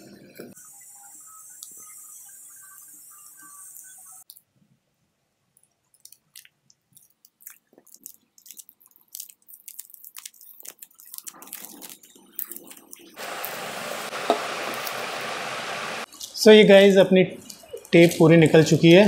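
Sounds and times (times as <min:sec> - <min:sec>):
tape peeling with sticky crackles: 0:05.9 - 0:13.6.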